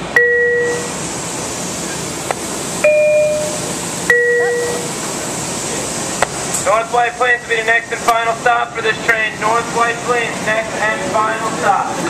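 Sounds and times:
two-note ding-dong chime: 2.8 - 4.8.

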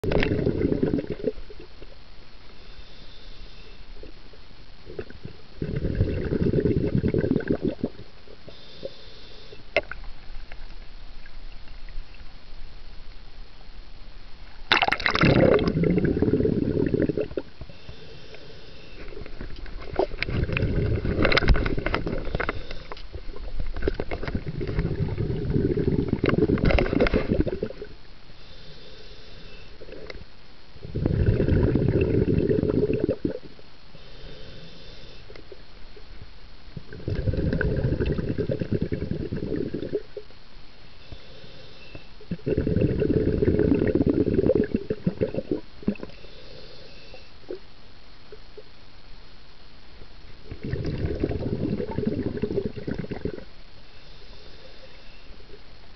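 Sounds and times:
bubbles gurgling underwater: 0.0 - 1.7, 4.9 - 8.1, 14.7 - 17.5, 19.2 - 27.9, 30.8 - 33.5, 36.8 - 40.2, 42.3 - 46.1, 50.4 - 53.5
regulator inhalation hiss: 2.4 - 4.1, 8.4 - 9.8, 16.2 - 20.0, 21.3 - 23.4, 25.0 - 30.2, 31.9 - 35.6, 40.7 - 42.8, 45.3 - 47.6, 51.4 - 55.6.

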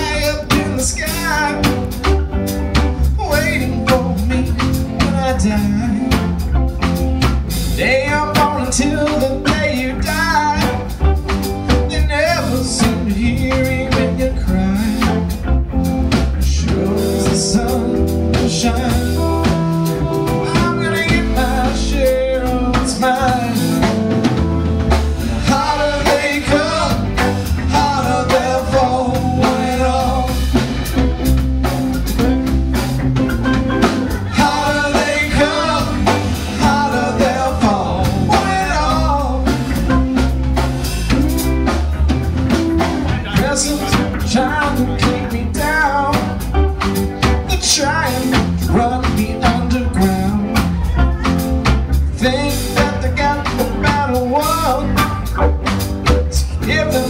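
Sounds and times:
electric bass: 0.0 - 57.0
electric guitar lead line: 0.0 - 57.0
drum beat: 18.4 - 57.0.

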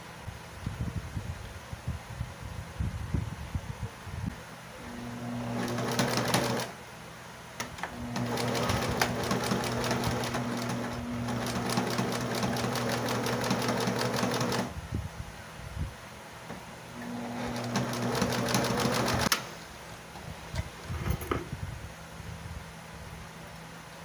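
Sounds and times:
sewing machine stitching: 5.0 - 6.7, 7.8 - 14.7, 17.0 - 19.4.

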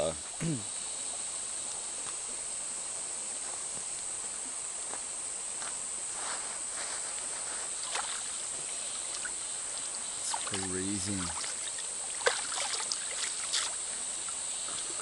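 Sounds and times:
high-pitched insect drone: 0.0 - 6.8, 7.6 - 15.0
sandals crunching on gravel: 5.6 - 8.2
hands splashing in water: 10.3 - 13.8.

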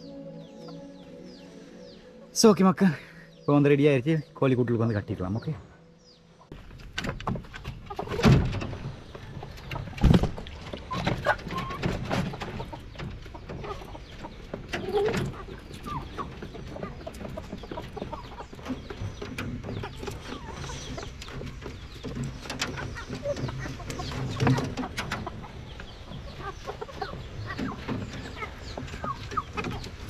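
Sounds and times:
knocks and rattles on wood: 6.6 - 30.0
chicken clucking: 7.2 - 30.0.

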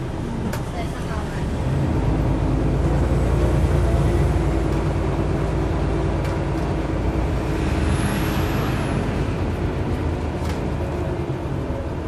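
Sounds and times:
bus diesel engine running: 0.0 - 12.0.

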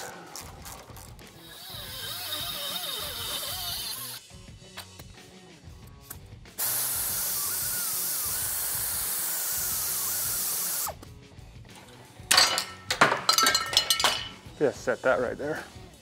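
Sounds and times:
air grinder cutting metal: 1.4 - 4.3, 6.6 - 11.0.

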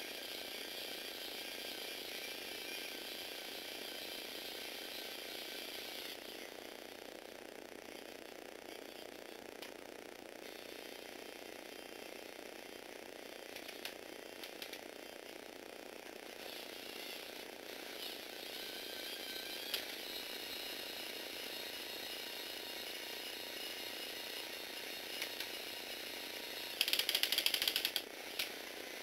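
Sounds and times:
electric motor whirring: 0.0 - 29.0
rapid ratcheting clicks: 16.4 - 28.6
plastic gears clicking: 26.5 - 28.6.

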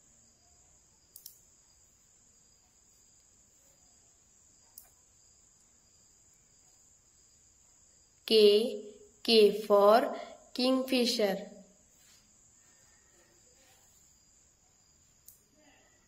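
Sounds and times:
faint high-pitched hiss: 0.0 - 16.0
faint clicks: 1.1 - 1.4, 4.7 - 5.0, 15.2 - 15.4.

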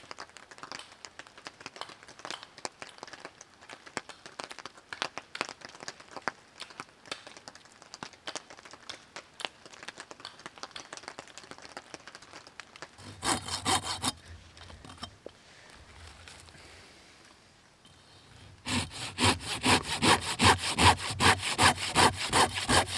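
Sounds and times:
pruning saw cutting wood: 13.0 - 14.3, 18.6 - 22.9.

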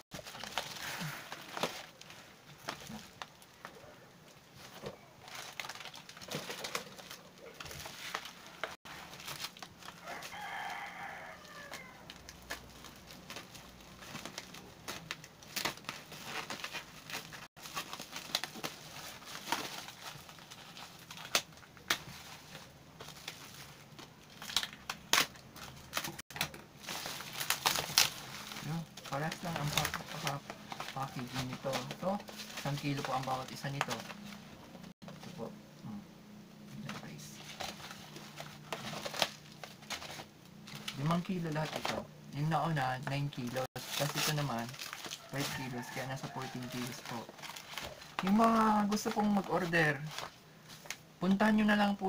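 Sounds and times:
plastic wrapping crinkling: 0.0 - 35.5, 36.8 - 52.0
rooster crowing: 9.9 - 12.2, 45.1 - 46.9.

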